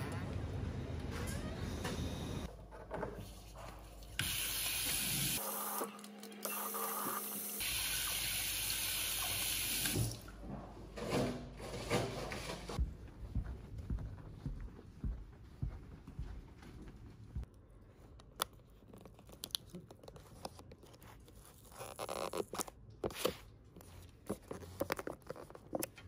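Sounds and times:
tap water running into sink: 0:04.2 - 0:10.3.

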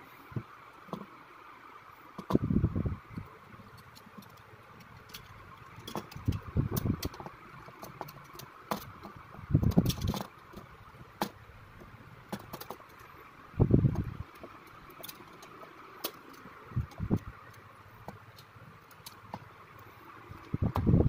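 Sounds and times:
plastic parts rubbing and clattering: 0:03.6 - 0:21.0
plastic toy parts clicking: 0:03.7 - 0:11.4, 0:13.9 - 0:19.5.

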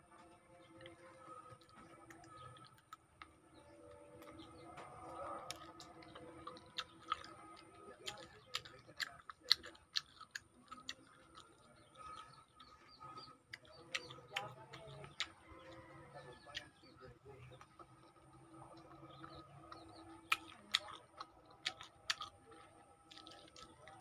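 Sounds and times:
mouth chewing and sucking: 0:03.9 - 0:15.7, 0:17.5 - 0:24.0.

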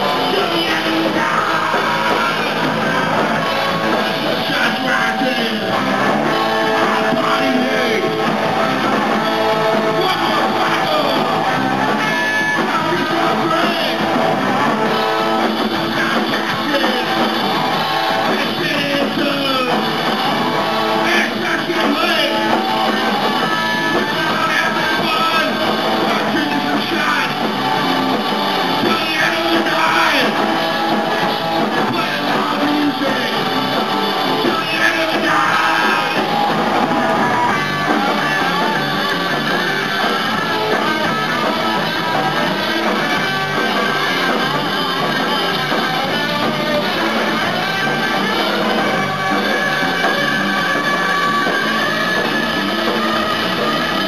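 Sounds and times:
person singing: 0:00.0 - 0:17.3, 0:34.3 - 0:54.0
live rock band playing: 0:00.0 - 0:54.0.

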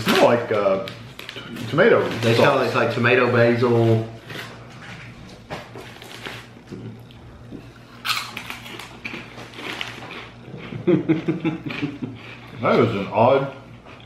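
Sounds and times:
snacks crunching while chewed: 0:00.0 - 0:02.8, 0:04.2 - 0:12.6, 0:13.6 - 0:14.0
plastic snack bag crinkling: 0:00.0 - 0:04.5, 0:08.1 - 0:10.3.

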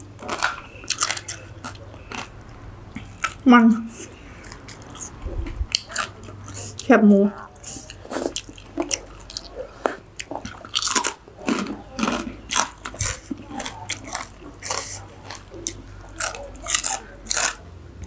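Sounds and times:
crunching crispy food: 0:00.0 - 0:05.1, 0:10.2 - 0:17.6.

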